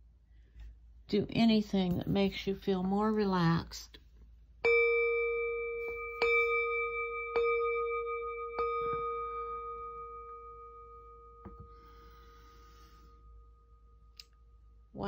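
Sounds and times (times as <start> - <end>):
singing bowl ringing: 4.6 - 15.0.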